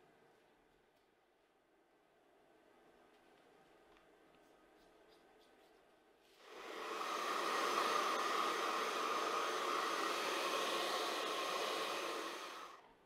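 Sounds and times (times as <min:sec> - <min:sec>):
hair dryer blowing: 0:06.4 - 0:12.8.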